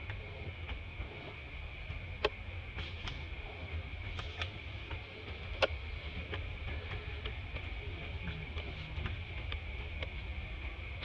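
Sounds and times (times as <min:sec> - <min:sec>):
sharp clicks and ticks: 0:08.4 - 0:10.2.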